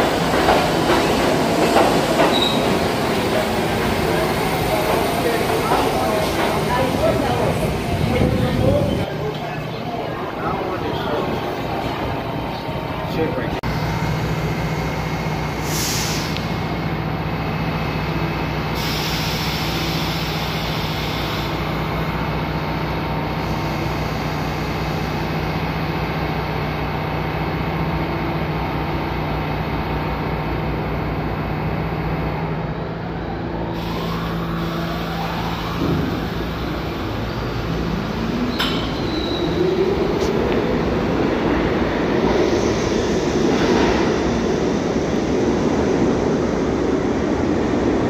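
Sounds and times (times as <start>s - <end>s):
subway train hum: 0.0s - 48.0s
air-brake hisses: 15.6s - 16.5s, 18.8s - 21.6s.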